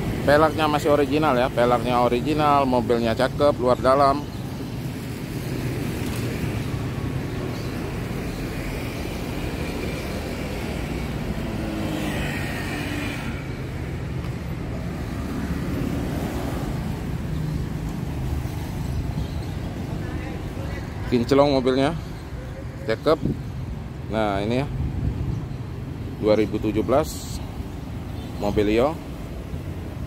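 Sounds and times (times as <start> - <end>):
passing cars and motorbikes: 0.0 - 30.0
loud vehicle passing: 8.6 - 18.9.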